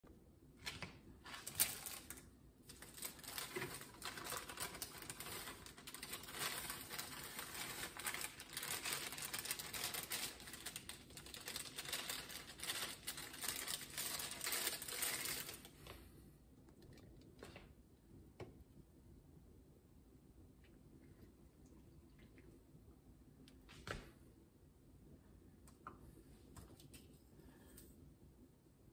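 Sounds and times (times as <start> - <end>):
plastic bag crinkling: 0.7 - 16.0.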